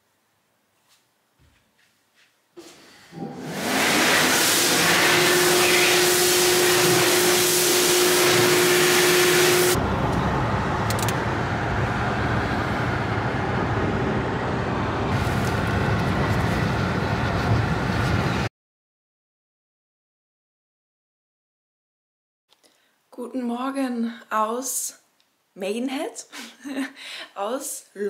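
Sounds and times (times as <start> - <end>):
loud steady hiss: 3.4 - 9.8.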